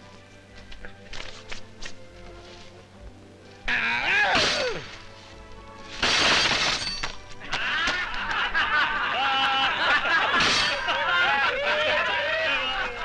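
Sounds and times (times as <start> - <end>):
music: 0.0 - 13.0
group laughing: 7.4 - 13.0
crash of something breaking: 10.3 - 11.0.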